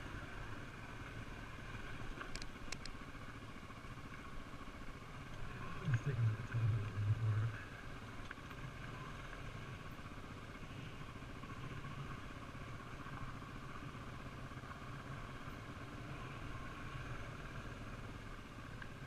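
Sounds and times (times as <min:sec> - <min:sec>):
dirt bike engine running: 0:00.0 - 0:19.0.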